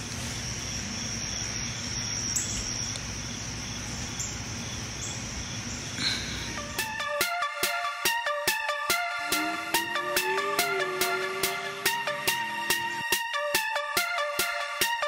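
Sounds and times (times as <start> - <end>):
faint pulsing insect call: 0.0 - 6.7
insects trilling: 0.0 - 6.7.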